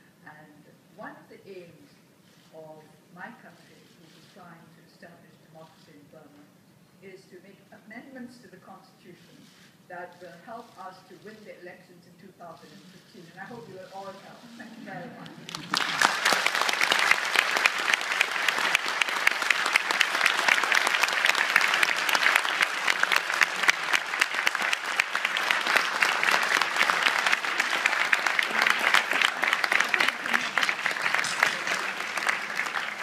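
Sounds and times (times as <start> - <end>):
audience applauding: 15.2 - 33.0.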